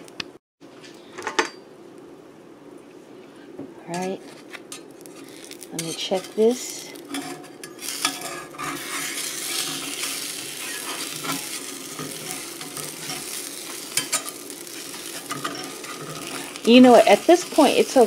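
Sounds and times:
eggs sizzling in skillet: 0:04.3 - 0:18.0
spatula scraping and clicking on pan: 0:04.7 - 0:18.0.

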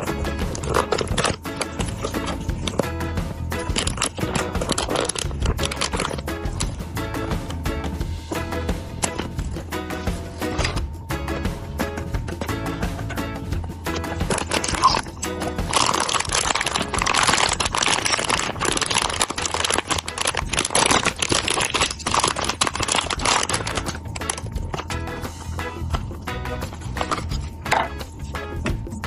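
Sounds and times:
plastic bag crinkling: 0:00.0 - 0:02.8, 0:03.6 - 0:06.7, 0:14.2 - 0:24.9
background music with steady beat: 0:00.0 - 0:29.0.

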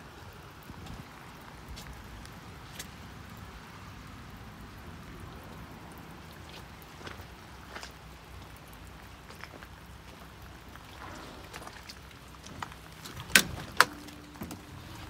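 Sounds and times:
light rain pattering: 0:00.0 - 0:15.0
low steady hum: 0:10.6 - 0:15.0.

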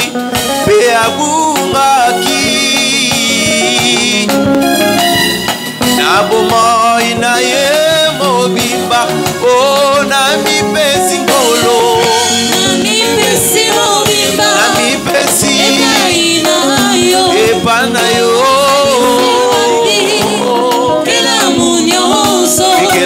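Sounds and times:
man singing lead: 0:00.0 - 0:05.1, 0:05.8 - 0:23.0
backing singers: 0:00.0 - 0:23.0
electric keyboard: 0:00.0 - 0:23.0
steady beat: 0:00.0 - 0:23.0.

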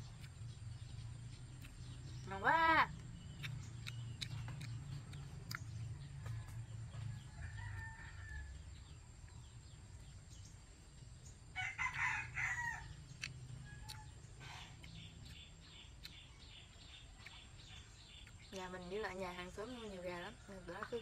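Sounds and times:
rooster crowing: 0:06.3 - 0:08.8, 0:11.6 - 0:13.0.

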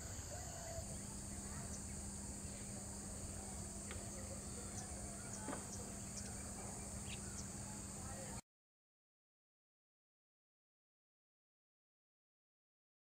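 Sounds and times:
faint bird chirps: 0:00.0 - 0:08.4
insect chorus: 0:00.0 - 0:08.4
low steady hum: 0:00.0 - 0:08.4.

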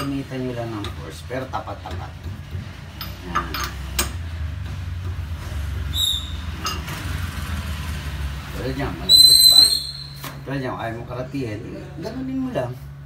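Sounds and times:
high chirp: 0:05.9 - 0:06.6, 0:09.1 - 0:10.2.

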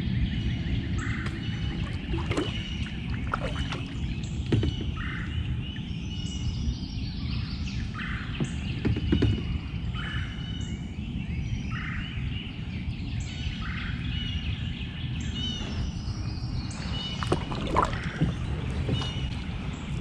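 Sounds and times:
steady low rumble: 0:00.0 - 0:08.6.

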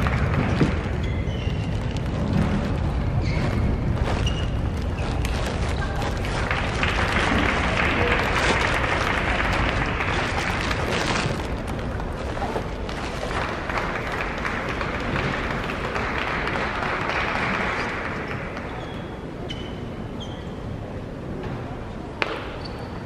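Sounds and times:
crowd applauding: 0:00.0 - 0:01.0, 0:06.1 - 0:18.8.

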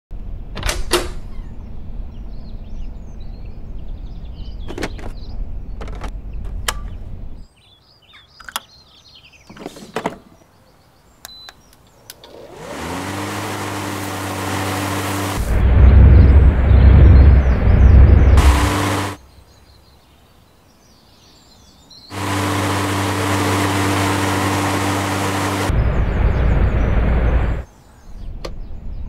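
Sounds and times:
electric lawn mower motor humming: 0:12.1 - 0:15.6, 0:18.4 - 0:19.2, 0:22.1 - 0:27.6
spinning mower blade rush: 0:12.2 - 0:19.2, 0:22.1 - 0:27.6
low rumble: 0:15.4 - 0:19.2, 0:25.7 - 0:27.6.

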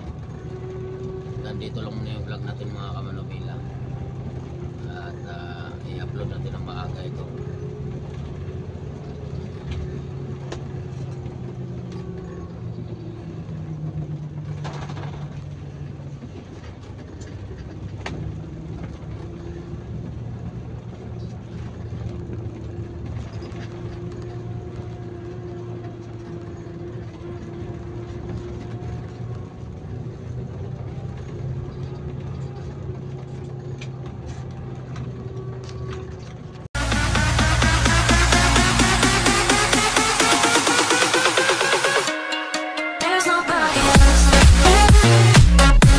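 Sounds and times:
bus engine running: 0:00.0 - 0:45.9
road noise: 0:00.0 - 0:45.9.

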